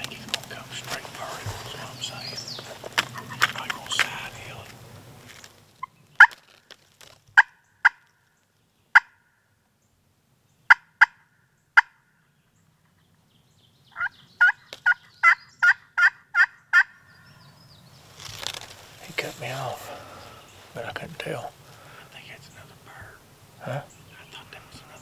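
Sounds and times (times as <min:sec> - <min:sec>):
turkey call clucks: 0:02.6 - 0:04.4, 0:07.4 - 0:08.1, 0:09.0 - 0:09.2, 0:10.7 - 0:11.2, 0:11.8 - 0:12.0, 0:14.0 - 0:17.0
turkey call yelps: 0:07.4 - 0:08.0, 0:09.0 - 0:09.3, 0:11.8 - 0:12.0, 0:14.0 - 0:17.1.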